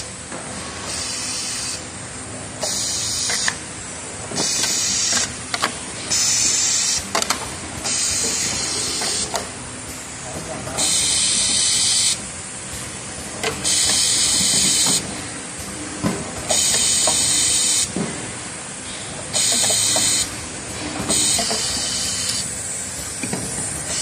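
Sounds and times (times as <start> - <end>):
compressed air hissing: 6.0 - 7.1, 7.8 - 10.0, 10.8 - 13.0, 13.6 - 15.7, 16.5 - 24.0
machine knocks and clicks: 7.1 - 9.5, 13.2 - 17.3, 19.4 - 21.8, 23.0 - 23.8.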